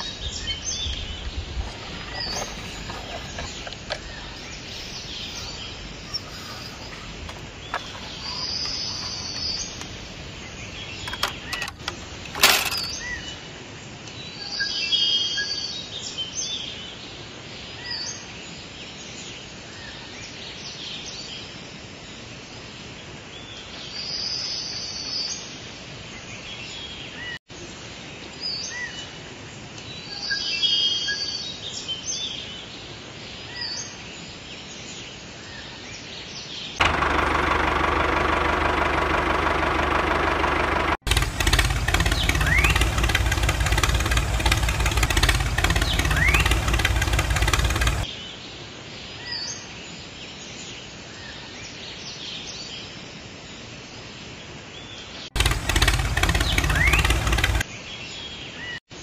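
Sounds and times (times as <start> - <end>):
birds chirping: 0.0 - 13.4, 36.8 - 48.1, 55.4 - 57.6
engine-like machine running: 0.0 - 13.4, 36.8 - 48.1, 55.4 - 57.6.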